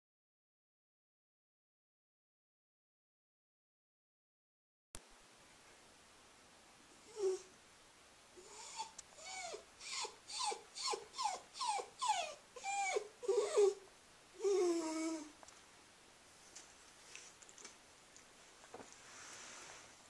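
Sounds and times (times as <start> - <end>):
dog whining: 7.0 - 7.5, 8.4 - 15.4.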